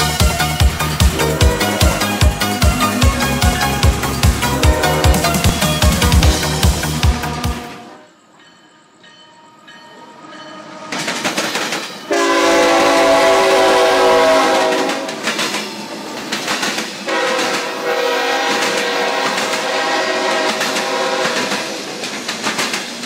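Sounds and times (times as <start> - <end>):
wheels on rails: 0.0 - 7.7, 8.3 - 12.5, 14.3 - 23.0
locomotive air horn: 0.0 - 8.1, 12.1 - 15.2, 17.1 - 21.9
train rumble: 0.0 - 23.0.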